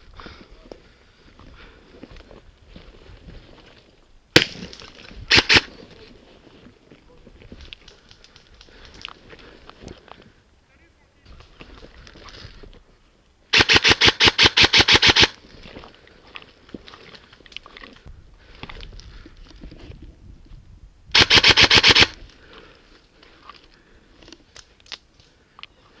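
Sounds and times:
faint clicks and rustling: 4.6 - 10.4, 15.5 - 20.1
airsoft rifle full-auto bursts: 5.3 - 5.7, 13.5 - 15.4, 21.1 - 22.2.

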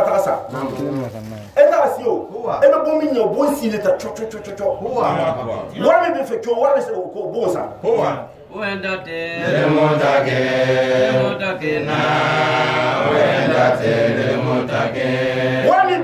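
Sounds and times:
man chanting: 0.0 - 3.1, 15.6 - 16.0
man speaking: 0.0 - 8.4.

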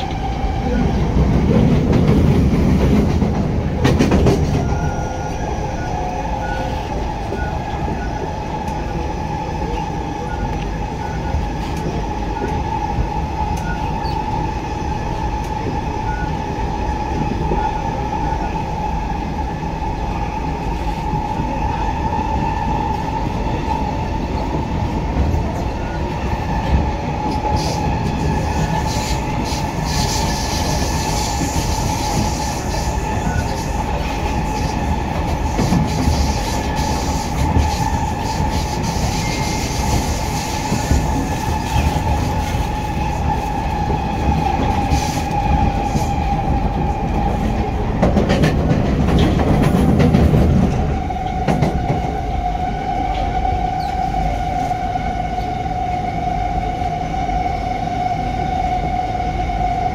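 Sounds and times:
train clatter: 0.0 - 5.0, 24.4 - 52.2
train rumbling on track: 0.0 - 59.9.

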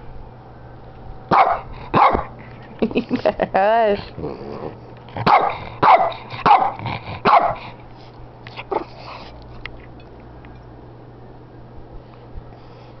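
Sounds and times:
small dog barking: 1.3 - 2.3, 5.2 - 7.6.

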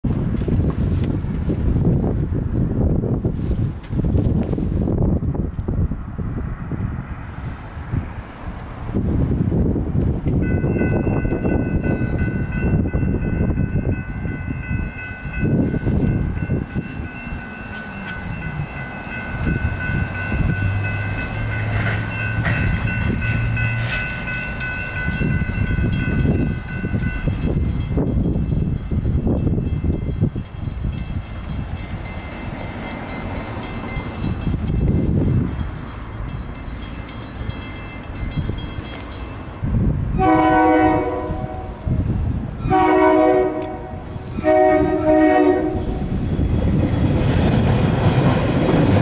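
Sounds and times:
train rumbling past: 0.0 - 49.0
railroad crossing bell ringing: 10.2 - 49.0.

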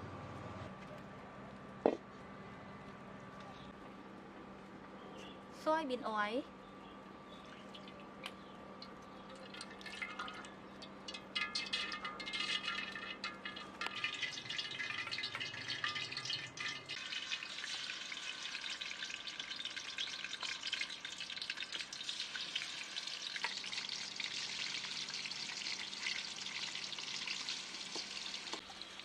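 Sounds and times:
tofu sizzling in hot oil: 11.1 - 29.0.

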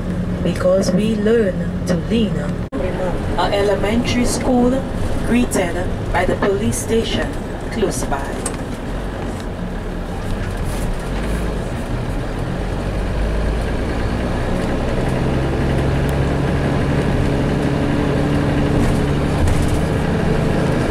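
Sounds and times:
vehicle engine and road noise: 0.0 - 20.9.

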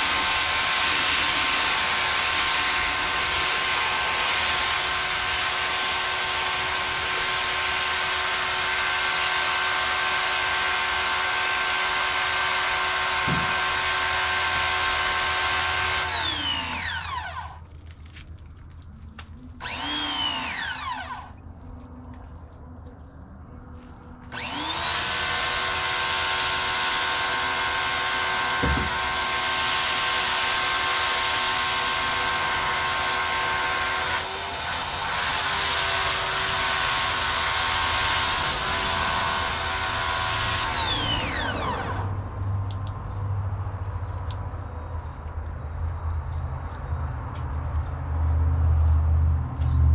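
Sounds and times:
pressure washer running: 0.0 - 17.7, 19.6 - 21.3, 24.3 - 42.8.

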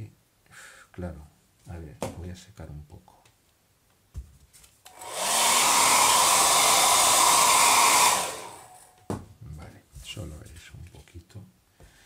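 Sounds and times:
hair dryer blowing: 4.9 - 8.9.

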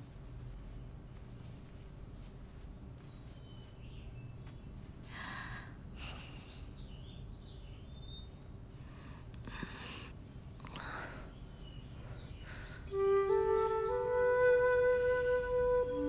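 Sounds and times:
soft rustles: 0.0 - 5.2
low steady hum: 0.0 - 16.0.

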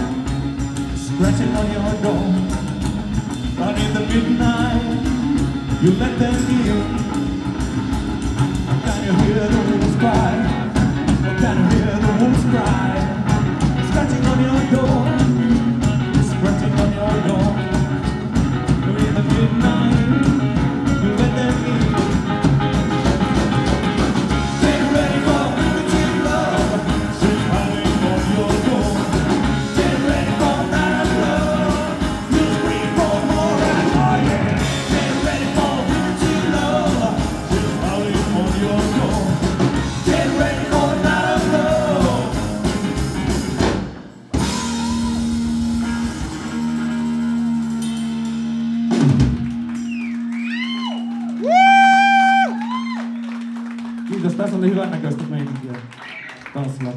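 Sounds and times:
person singing: 0.0 - 2.8, 3.5 - 7.7, 8.7 - 18.0, 18.7 - 22.2, 24.4 - 42.8
drum kit beat: 0.0 - 53.0
upright bass: 0.0 - 56.0
electric and acoustic guitars: 0.0 - 56.9.

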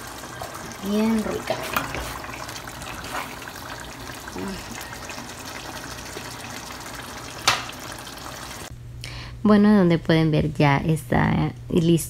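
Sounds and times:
stew bubbling in pot: 0.0 - 8.7.

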